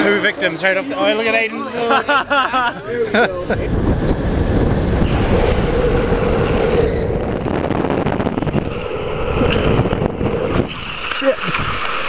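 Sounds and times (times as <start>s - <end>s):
longboard wheels rolling on asphalt: 2.1s - 12.0s
wind rushing over microphone: 2.8s - 12.0s
steady tone: 3.6s - 12.0s.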